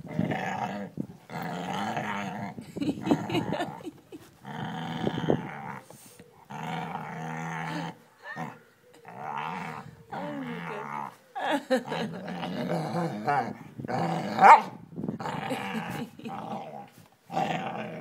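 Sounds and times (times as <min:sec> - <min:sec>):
dog growling: 0:04.4 - 0:11.2.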